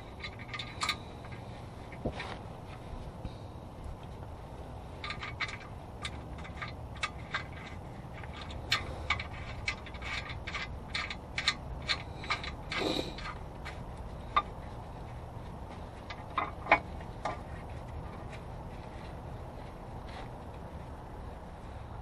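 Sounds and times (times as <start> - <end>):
metallic clicks of tools: 0.0 - 2.0, 5.0 - 14.6.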